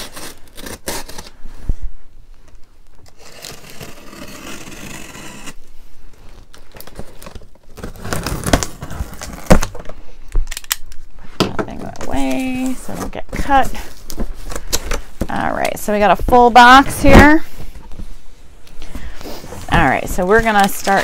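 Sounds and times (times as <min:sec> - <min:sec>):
box cutter slitting tape: 0:00.0 - 0:01.3, 0:03.0 - 0:05.6, 0:06.9 - 0:09.7.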